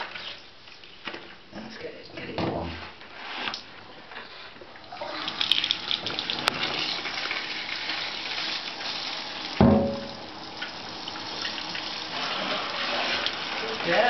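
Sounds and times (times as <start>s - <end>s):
shower water spraying: 5.0s - 14.0s.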